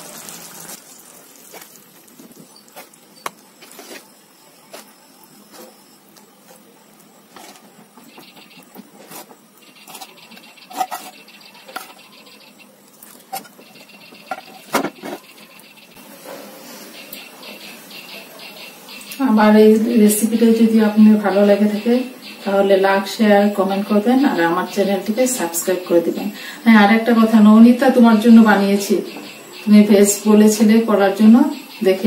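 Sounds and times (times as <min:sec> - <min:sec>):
spoon clinking and scraping dishes: 0:09.8 - 0:12.2.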